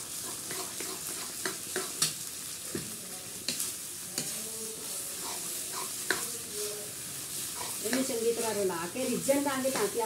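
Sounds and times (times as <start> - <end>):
food sizzling in pan: 0.0 - 10.0.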